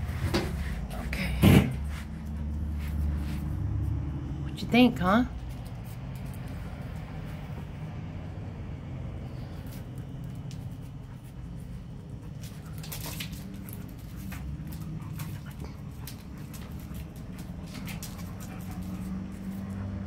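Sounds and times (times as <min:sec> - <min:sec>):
dogs scuffling and mouthing: 0:09.4 - 0:20.0.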